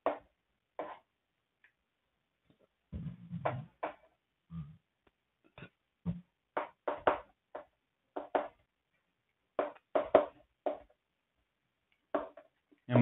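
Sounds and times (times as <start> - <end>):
writing strokes on a board: 0.0 - 1.1.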